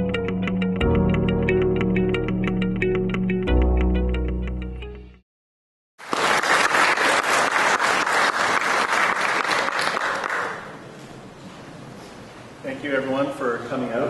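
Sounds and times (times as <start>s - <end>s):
audience applauding: 6.0s - 10.8s.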